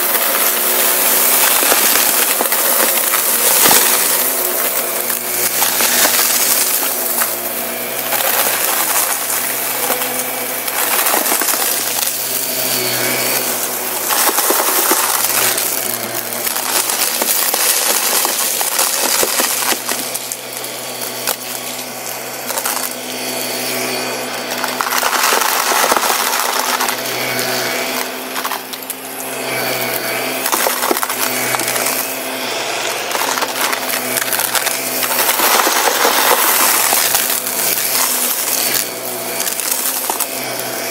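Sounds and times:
debris crackling in vacuum nozzle: 0.0 - 32.2, 32.8 - 40.9
vacuum motor hum: 0.0 - 40.9.

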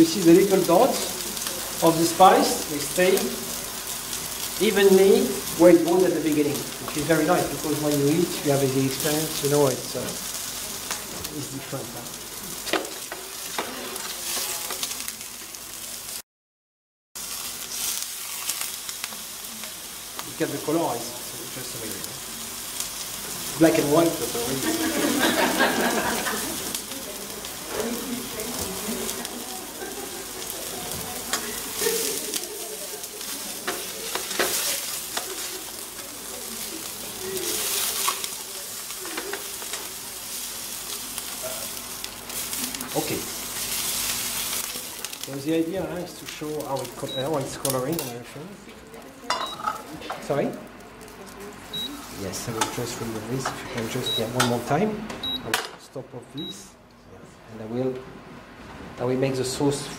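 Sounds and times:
meat sizzling in a frying pan: 0.0 - 16.2, 17.2 - 55.6
tongs clattering against pan: 31.2 - 35.8, 49.3 - 49.8.

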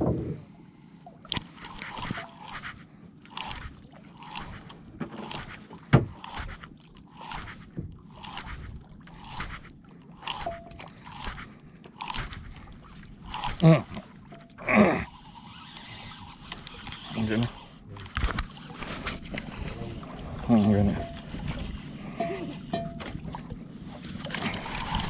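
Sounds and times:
fishing reel cranking: 1.3 - 18.8, 24.5 - 25.0.

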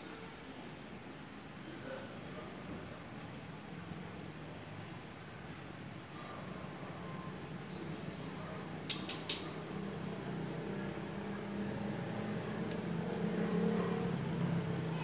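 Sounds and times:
small metal clicks: 8.9 - 9.6.

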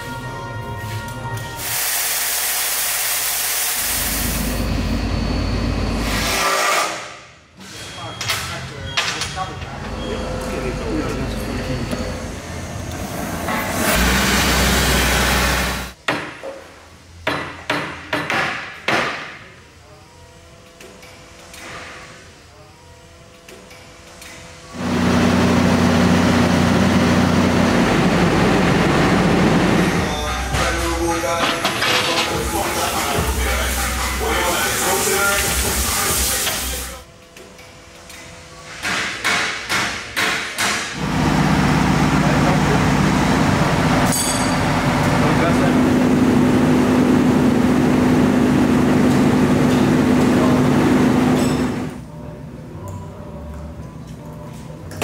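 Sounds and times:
diesel engine running: 12.5 - 16.0, 24.8 - 34.6, 41.0 - 52.0
hammer striking steel: 44.0 - 44.8.

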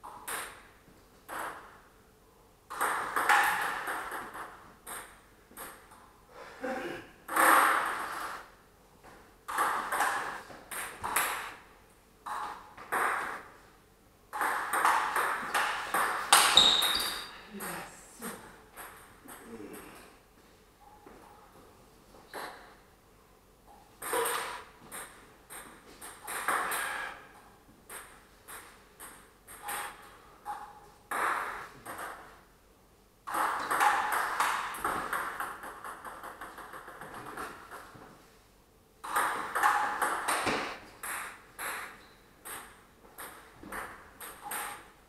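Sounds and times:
table tennis ball hits: 2.7 - 6.0, 7.3 - 8.3, 9.5 - 11.6, 12.2 - 13.6, 14.3 - 17.3, 24.0 - 27.1, 27.9 - 32.3, 33.3 - 37.9, 39.0 - 45.0.

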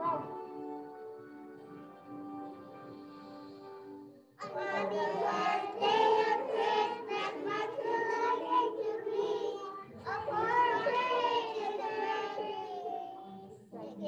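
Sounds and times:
instrumental music: 0.0 - 12.6
children singing together: 4.4 - 14.0.

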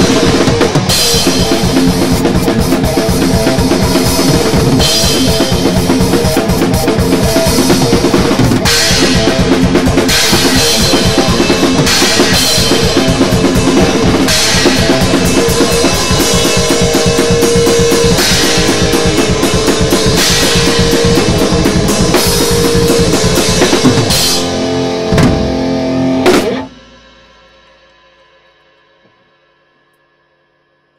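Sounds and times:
metal band playing: 0.0 - 27.9
rapid bass drum strokes: 0.0 - 28.5.

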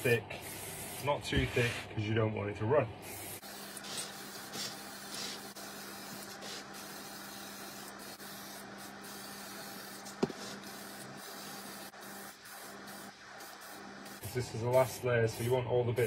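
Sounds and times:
aerosol can spray hissing: 3.0 - 15.6.

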